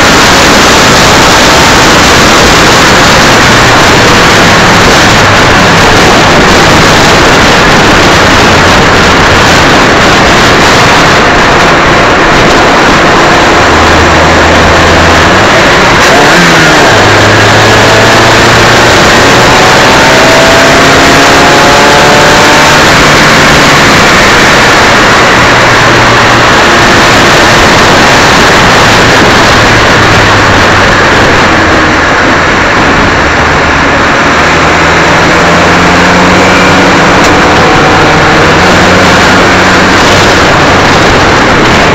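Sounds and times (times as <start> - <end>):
race car engine: 0.0 - 41.9
wind and road noise: 0.0 - 41.9.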